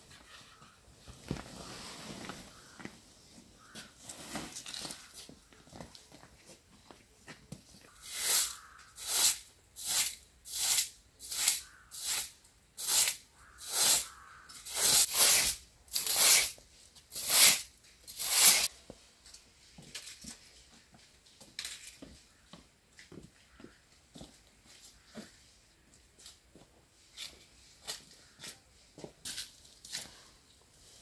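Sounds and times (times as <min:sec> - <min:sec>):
broom sweeping carpet: 0:01.4 - 0:02.6, 0:18.2 - 0:18.7.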